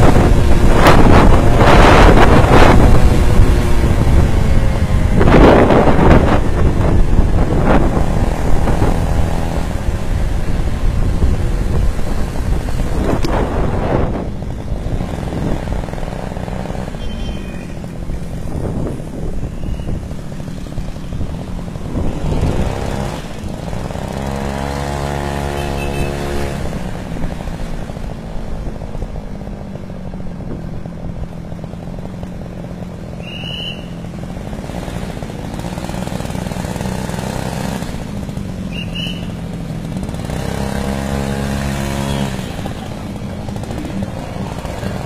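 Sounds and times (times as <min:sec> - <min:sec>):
wind buffeting microphone: 0:00.0 - 0:17.0, 0:17.6 - 0:25.2
scooter engine running: 0:00.0 - 0:45.0.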